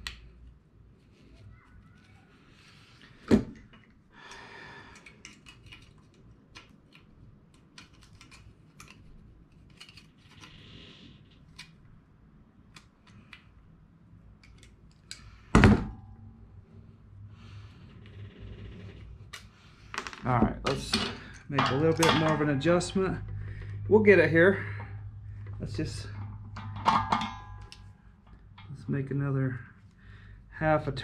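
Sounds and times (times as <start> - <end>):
metallic clunk with ring: 26.6 - 27.8.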